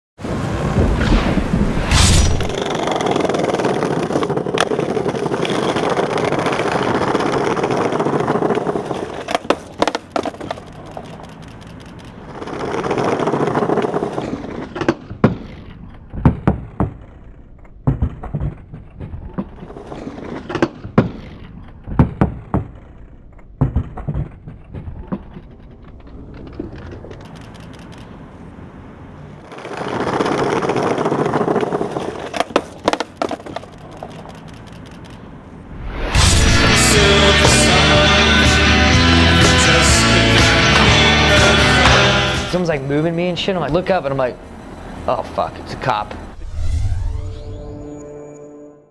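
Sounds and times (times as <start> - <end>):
skateboard wheels rolling on bricks: 0.2 - 46.4
skateboard cracks and clacks: 2.5 - 28.3, 29.4 - 35.6.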